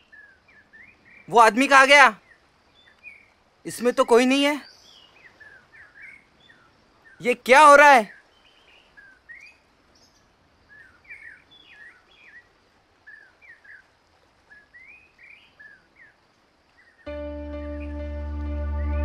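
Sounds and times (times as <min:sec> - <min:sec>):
small birds chirping: 0:00.0 - 0:18.0
ambient music with deep drone: 0:17.1 - 0:19.0.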